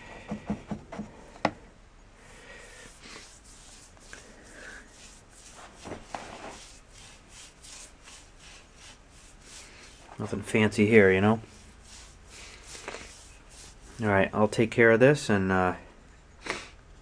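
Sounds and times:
paintbrush scrubbing on metal: 2.4 - 14.6.

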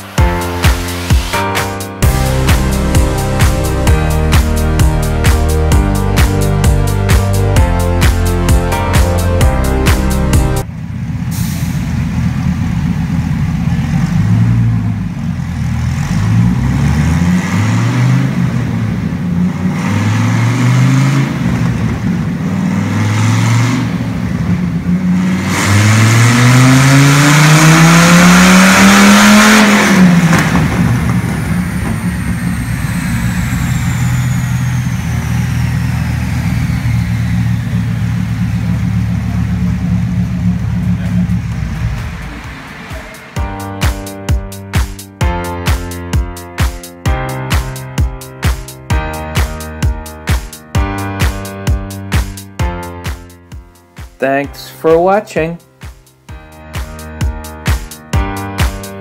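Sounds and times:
car engine idling: 0.0 - 17.2, 29.6 - 45.0
car engine revving: 0.0 - 52.3.

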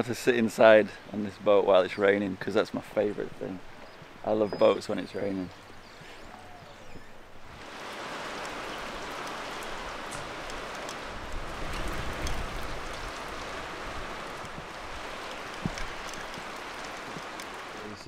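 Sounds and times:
rain on a boat deck: 0.0 - 18.0.

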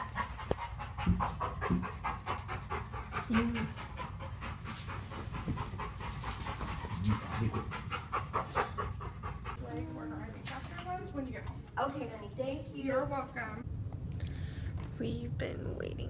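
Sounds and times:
dog panting: 0.0 - 9.8.

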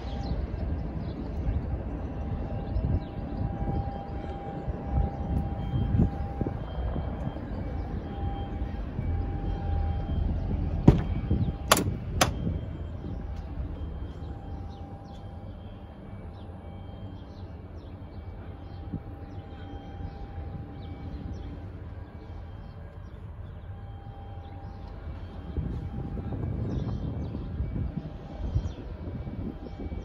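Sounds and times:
door handle and latch clicks: 11.7 - 12.4.

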